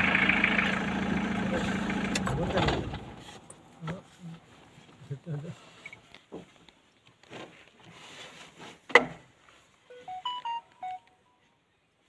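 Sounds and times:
short electronic beeps: 0:09.9 - 0:11.4.

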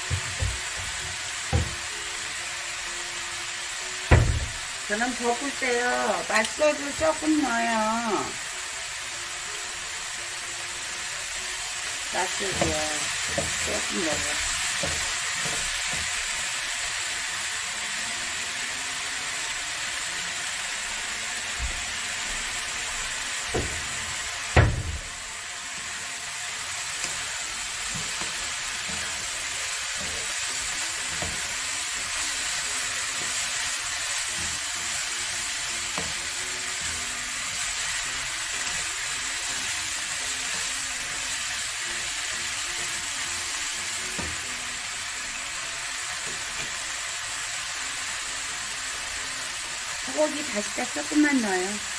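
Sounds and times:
vegetables sizzling in a frying pan: 0:00.0 - 0:51.9
sharp knock: 0:04.1 - 0:04.5.

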